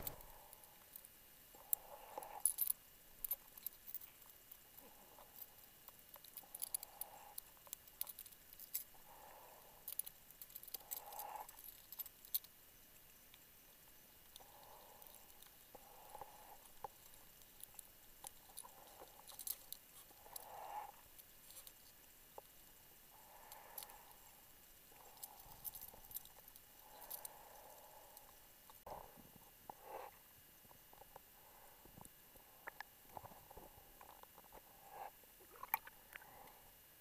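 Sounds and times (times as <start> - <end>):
soft muffled underwater hiss: 0.0 - 7.9, 8.5 - 11.6, 12.5 - 37.0
tiny underwater clicks: 35.4 - 36.3.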